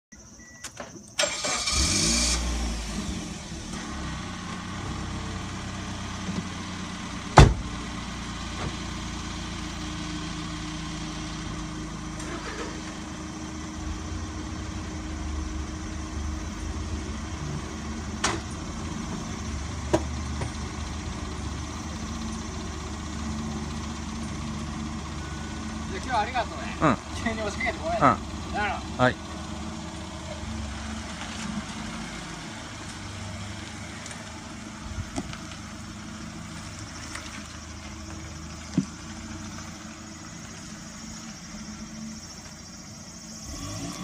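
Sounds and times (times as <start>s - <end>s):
car engine starting and idling: 0.2s - 44.0s
car door shutting: 7.3s - 7.8s, 18.1s - 19.3s.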